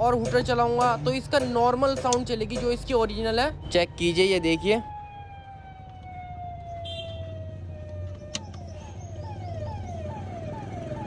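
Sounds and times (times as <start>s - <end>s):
siren wailing and yelping: 3.2s - 11.0s.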